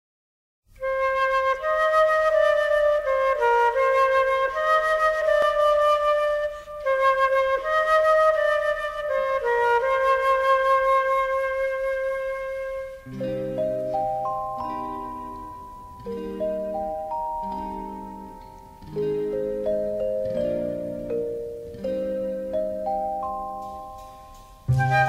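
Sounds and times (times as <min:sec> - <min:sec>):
slow flute-like melody: 0:00.7 - 0:25.0.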